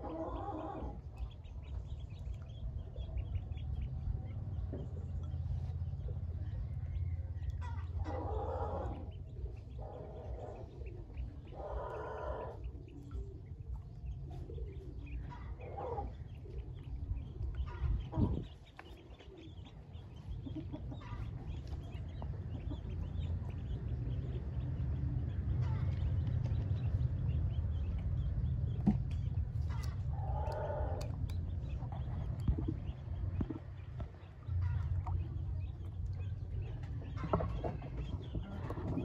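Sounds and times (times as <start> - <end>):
bird calls: 0.0 - 39.0
ducklings peeping: 0.0 - 39.0
low rumble: 0.9 - 11.8, 19.5 - 39.0.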